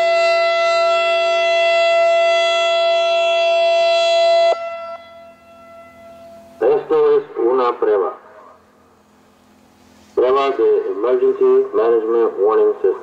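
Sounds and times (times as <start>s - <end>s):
electronic siren tone: 0.0s - 6.9s
siren voice message: 0.0s - 8.6s, 10.2s - 13.0s.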